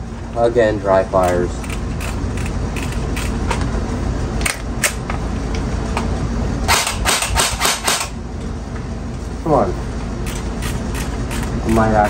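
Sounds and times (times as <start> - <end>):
steady low rumble: 0.0 - 12.0.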